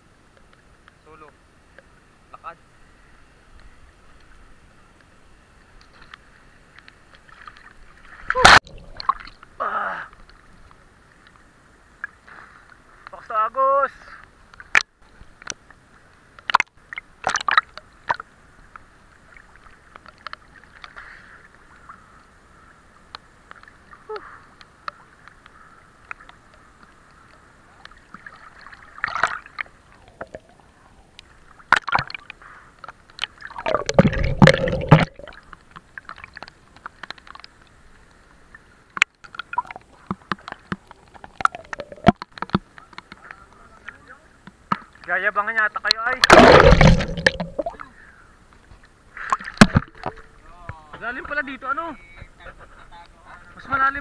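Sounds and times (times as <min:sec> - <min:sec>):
deep muffled water rush: 0:00.0 - 0:20.8, 0:21.4 - 0:54.0
water sloshing and gurgling: 0:05.7 - 0:13.0, 0:16.3 - 0:22.8, 0:23.4 - 0:43.3, 0:46.1 - 0:50.5.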